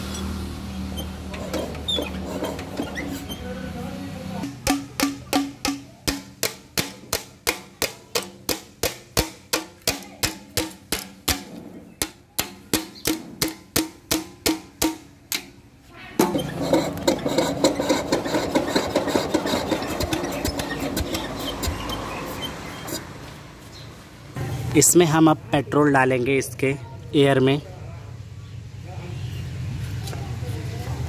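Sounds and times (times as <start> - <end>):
engine clattering while hand-cranked: 0.0 - 3.6, 16.2 - 23.1
metal tapping on engine valves: 4.4 - 15.6.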